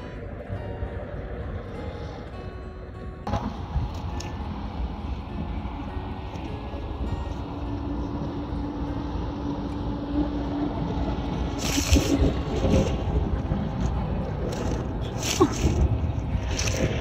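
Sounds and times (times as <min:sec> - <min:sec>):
road traffic engine hum: 0:00.0 - 0:17.0
wind rumbling on microphone: 0:00.0 - 0:17.0
short rustling bursts: 0:11.6 - 0:13.0, 0:14.5 - 0:17.0.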